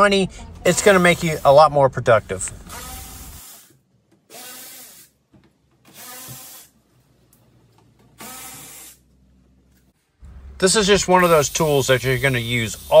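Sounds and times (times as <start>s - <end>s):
cordless ratchet motor whine: 2.7s - 5.1s.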